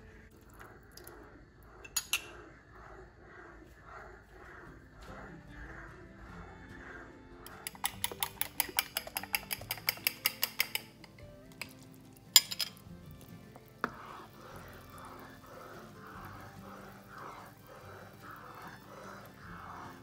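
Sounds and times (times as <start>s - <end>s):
utensil clicking against cookware: 1.8s - 2.4s, 7.5s - 20.0s
soft background music: 4.4s - 20.0s.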